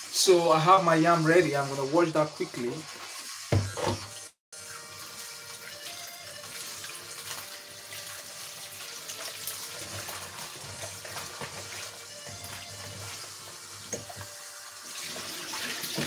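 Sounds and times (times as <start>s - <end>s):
tap running into a sink: 3.0s - 4.2s, 8.8s - 14.3s, 15.0s - 16.0s.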